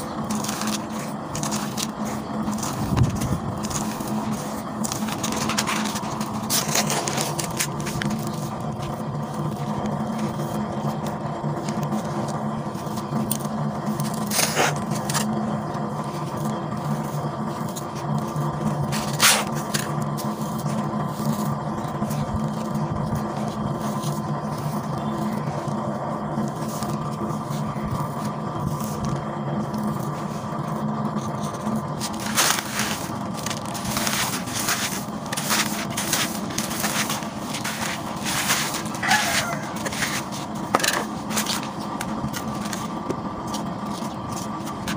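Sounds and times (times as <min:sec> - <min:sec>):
steady low hum: 0:00.0 - 0:44.9
soil crumbling in hands: 0:26.4 - 0:43.0.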